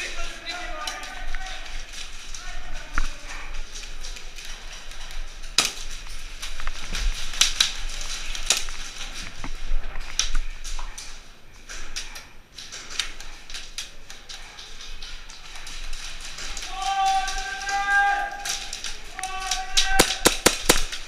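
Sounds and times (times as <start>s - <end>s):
airsoft gun cracks and clicks: 19.6s - 21.0s.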